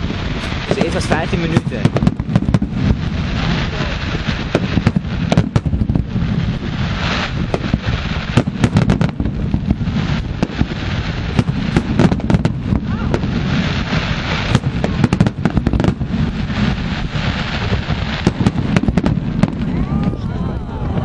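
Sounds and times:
firework shells bursting: 0.0 - 20.2
low rumble: 1.7 - 21.0.

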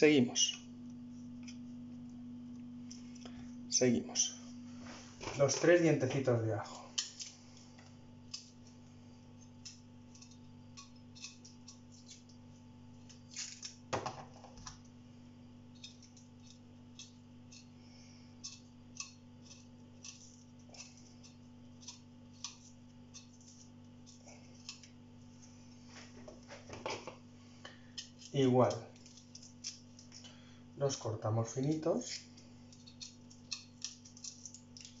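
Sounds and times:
steady low hum: 0.0 - 35.0
garlic cloves clicking and tapping: 32.7 - 35.0.

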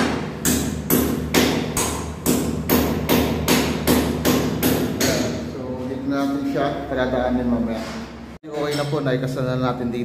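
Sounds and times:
hammer striking chisel: 0.0 - 5.4.

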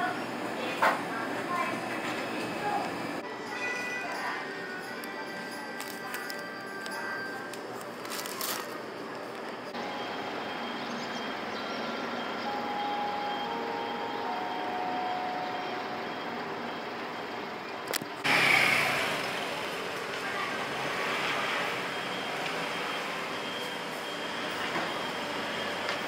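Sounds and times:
street noise: 0.0 - 26.0
chime melody: 3.3 - 8.5.

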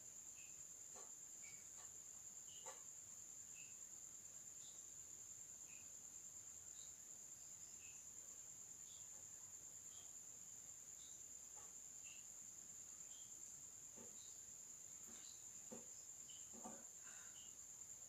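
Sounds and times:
high-pitched insect trill: 0.0 - 18.0.

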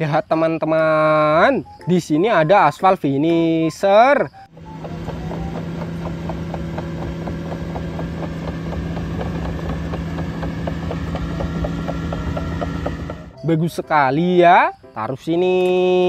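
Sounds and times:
diesel engine running: 4.5 - 13.4
fast even clicking: 4.6 - 13.3.

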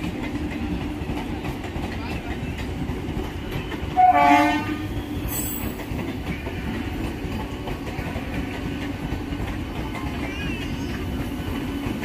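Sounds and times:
train horn blast: 3.9 - 5.4.

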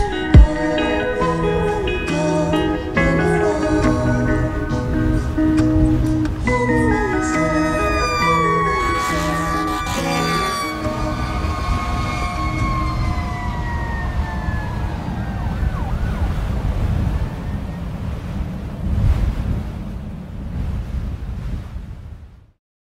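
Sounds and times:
fire engine siren winding down: 6.4 - 17.8.

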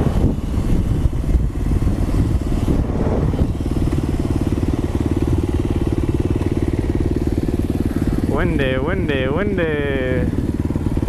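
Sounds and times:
wind on microphone: 0.0 - 6.6.

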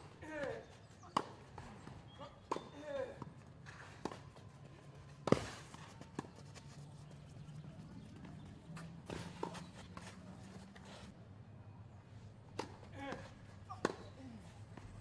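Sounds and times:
tennis ball bouncing: 12.5 - 14.1.

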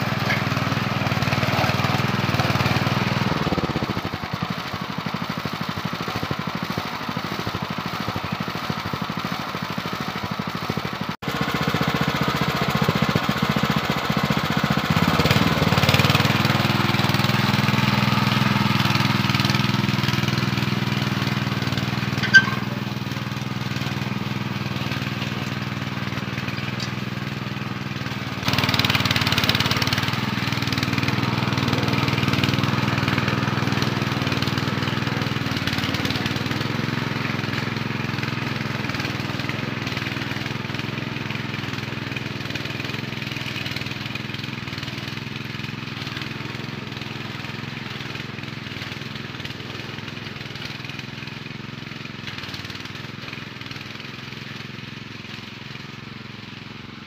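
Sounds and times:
tiller engine running under load: 0.0 - 57.0.

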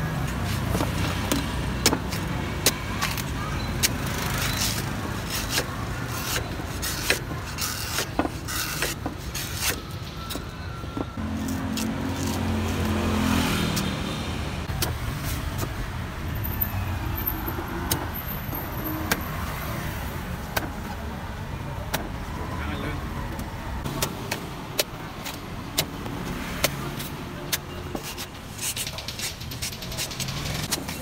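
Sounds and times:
street traffic: 0.0 - 31.0
cleaver chopping coconut husk: 0.5 - 9.9, 17.8 - 18.1, 20.5 - 20.9, 23.8 - 31.0
vehicle engine passing: 11.2 - 15.2.

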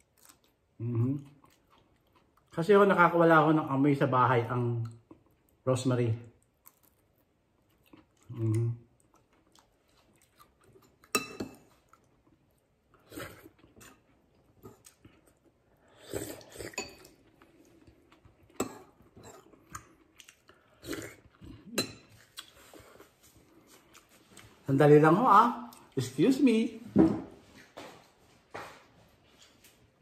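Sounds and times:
person chewing: 0.0 - 2.6, 6.3 - 24.7.

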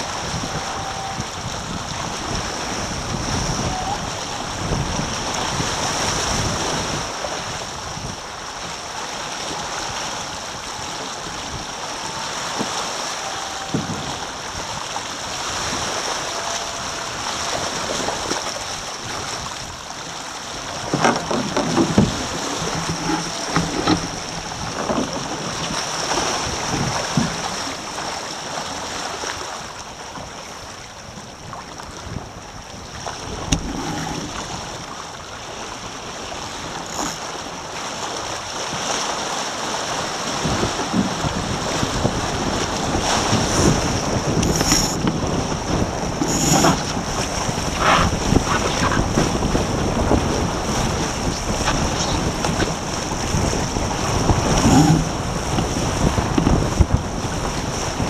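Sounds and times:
wind buffeting microphone: 0.0 - 8.3, 20.6 - 28.0, 40.2 - 58.0
water rushing along hulls: 0.0 - 58.0.

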